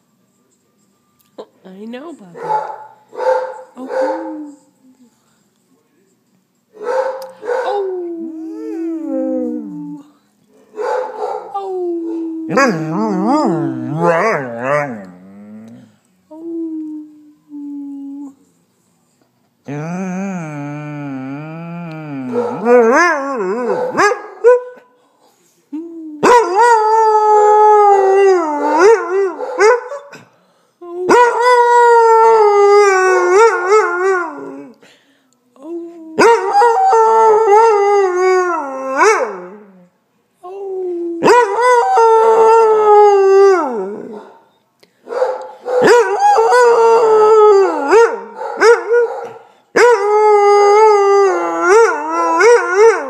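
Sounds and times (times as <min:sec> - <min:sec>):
dog howling: 0:11.5 - 0:15.8, 0:19.7 - 0:24.1, 0:45.7 - 0:53.0.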